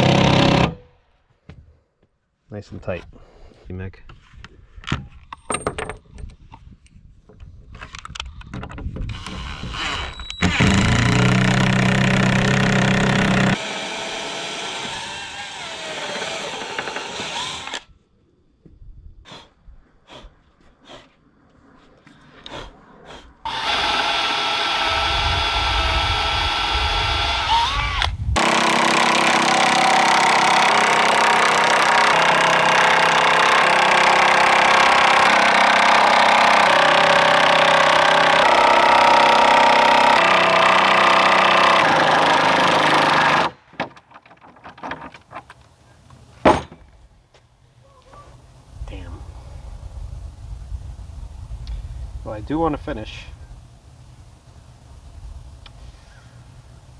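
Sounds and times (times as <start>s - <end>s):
cordless drill boring into wood: 9.1s - 17.9s, 23.5s - 43.6s
knocks and handling sounds: 43.6s - 47.5s.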